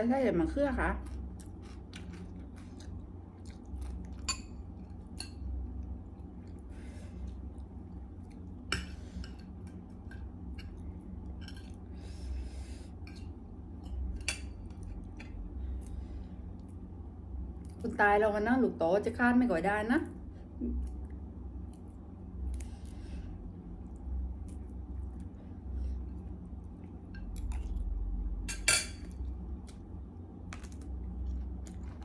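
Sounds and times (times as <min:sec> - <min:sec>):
steady low hum: 0:00.0 - 0:32.0
person chewing: 0:01.0 - 0:05.2.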